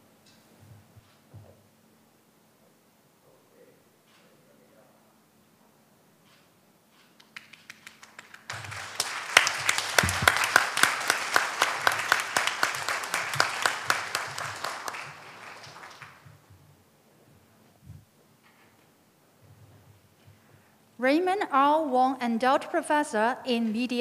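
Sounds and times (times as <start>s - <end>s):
audience applauding: 7.2s - 16.4s.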